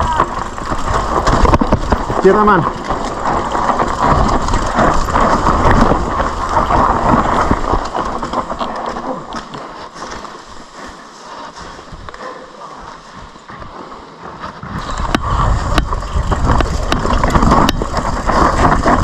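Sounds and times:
wind rumbling on microphone: 0:00.0 - 0:09.1, 0:14.5 - 0:19.0
bike clattering over bumps: 0:00.0 - 0:10.8, 0:14.5 - 0:19.0
bike tyres crunching over dirt: 0:00.0 - 0:19.0.

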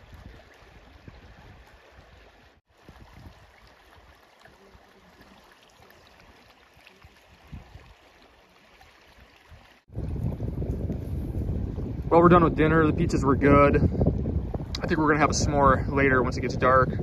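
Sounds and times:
wind rumble on microphone: 0:00.0 - 0:04.1, 0:07.2 - 0:08.0, 0:09.4 - 0:17.0.

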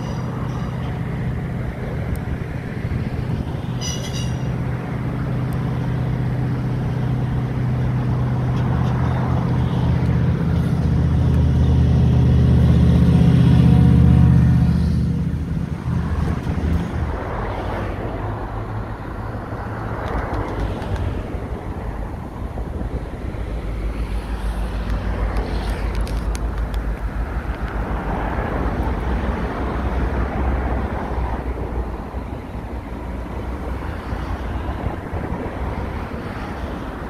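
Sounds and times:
diesel locomotive engine passing: 0:00.0 - 0:37.0
low rumble of background traffic: 0:00.0 - 0:37.0.

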